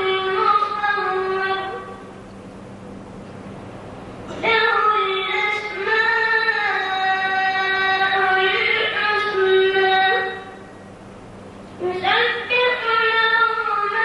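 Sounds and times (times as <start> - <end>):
boy chanting melodically: 0.0 - 2.1, 4.3 - 10.7, 11.8 - 14.0.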